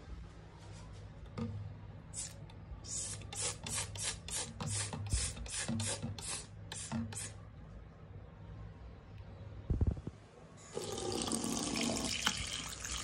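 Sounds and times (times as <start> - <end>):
spray bottle hissing: 2.2 - 7.4.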